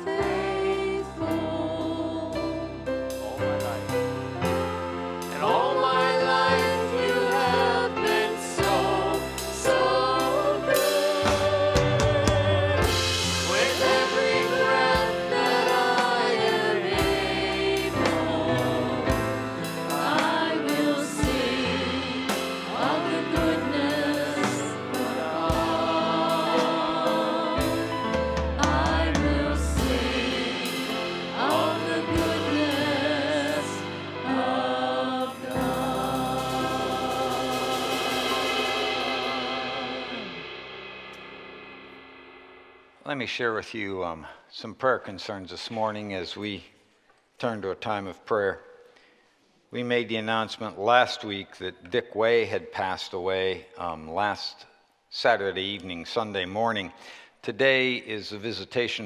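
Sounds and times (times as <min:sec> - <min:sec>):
choir singing with band: 0:00.0 - 0:42.8
drums: 0:00.0 - 0:44.6.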